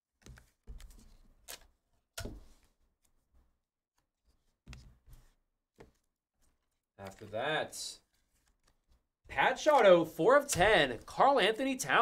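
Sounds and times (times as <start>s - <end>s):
cards clicking and sliding: 9.6s - 11.1s.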